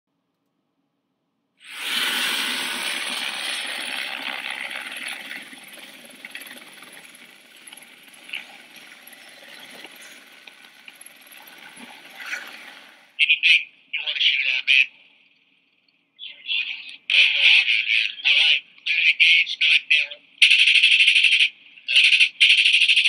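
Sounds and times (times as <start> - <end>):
helicopter turbine and rotor: 1.6 - 13.2, 20.4 - 23.0
faint high whine: 1.6 - 20.4.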